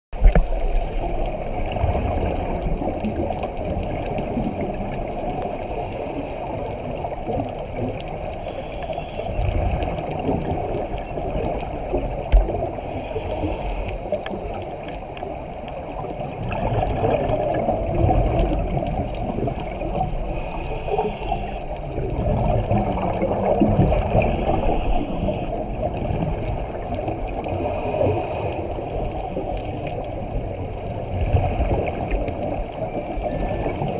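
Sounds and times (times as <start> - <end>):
exhaled bubbles gurgling: 0.2 - 33.9
muffled underwater rush: 0.2 - 33.9
regulator hiss: 8.4 - 9.4, 12.8 - 14.1, 19.5 - 21.8, 27.5 - 29.9.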